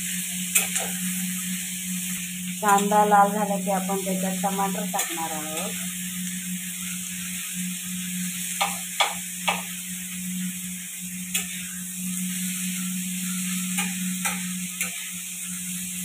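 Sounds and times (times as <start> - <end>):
onions sizzling in a pan: 0.0 - 16.0
steady low hum: 0.8 - 6.7.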